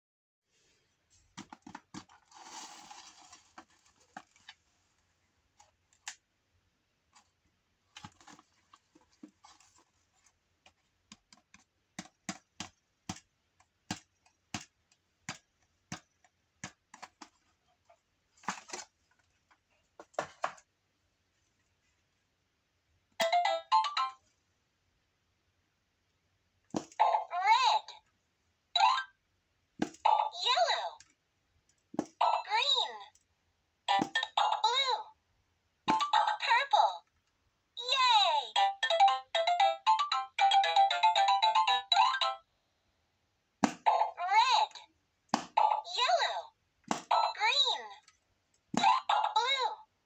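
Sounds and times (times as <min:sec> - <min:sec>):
cardboard rustling: 0:01.1 - 0:05.9, 0:07.1 - 0:12.8, 0:16.9 - 0:20.6
plastic toy clicks and taps: 0:11.1 - 0:17.3.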